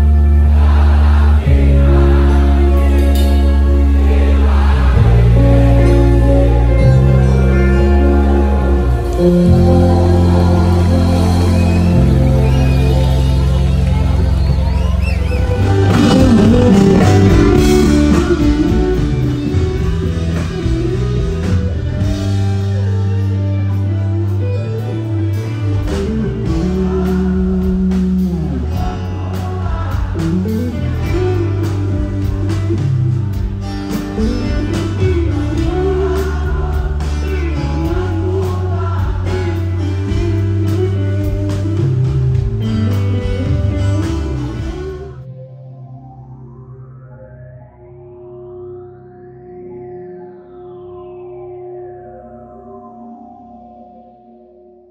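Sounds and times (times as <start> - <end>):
rock band playing: 0.0 - 45.3
person singing: 25.3 - 33.2, 34.2 - 42.0.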